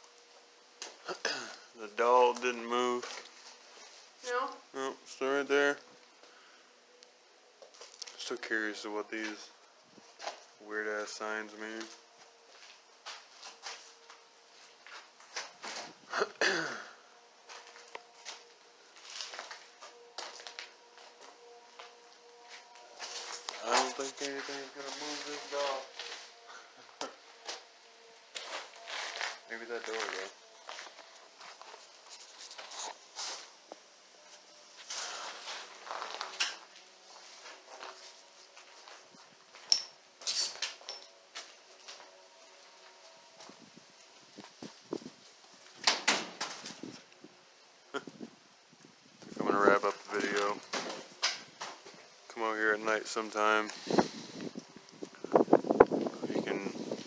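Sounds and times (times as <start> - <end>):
footsteps on debris-strewn floor: 7.6 - 8.2, 11.7 - 16.0, 17.4 - 27.6, 28.3 - 42.1
sharp clinks: 39.7 - 41.2.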